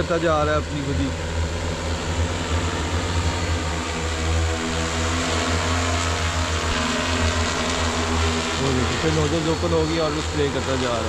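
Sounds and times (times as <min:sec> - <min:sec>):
drone propellers humming: 0:00.0 - 0:11.0.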